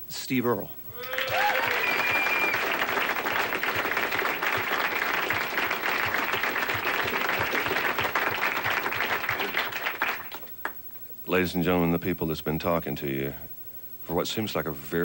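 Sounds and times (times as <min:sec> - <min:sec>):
audience applauding: 0:00.9 - 0:10.8.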